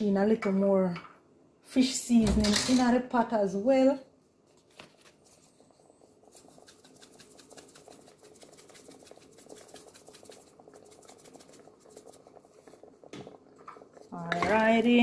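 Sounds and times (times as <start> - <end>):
stew bubbling and popping: 5.2 - 15.0.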